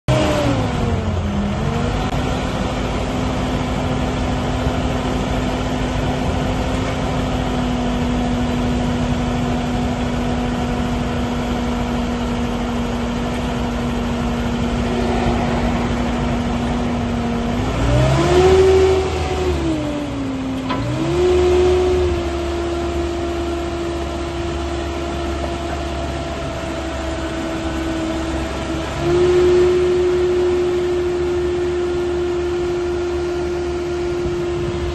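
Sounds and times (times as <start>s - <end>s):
diesel engine idling and revving: 0.1s - 34.9s
hydraulics operating: 8.7s - 22.4s.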